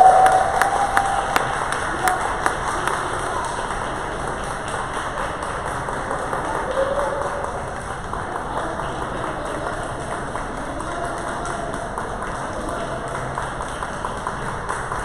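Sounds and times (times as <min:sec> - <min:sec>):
echoing crowd hubbub: 0:00.0 - 0:15.0
scattered applause: 0:00.0 - 0:15.0.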